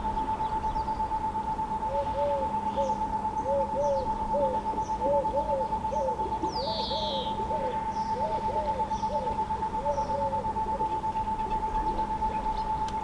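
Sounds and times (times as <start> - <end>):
dove cooing: 0.0 - 13.0
songbird trill: 0.0 - 13.0
steady high whine: 0.0 - 13.0
faint chirps: 1.9 - 12.9.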